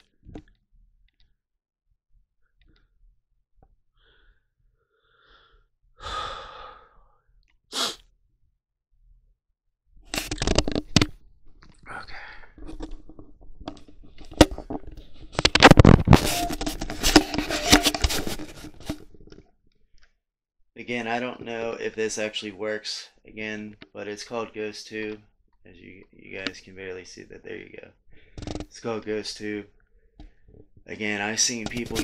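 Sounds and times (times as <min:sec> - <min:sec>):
breathy burst: 0:04.0 - 0:07.1
camera handling rustles and knocks: 0:10.1 - 0:11.6, 0:12.6 - 0:19.4, 0:31.6 - 0:32.0.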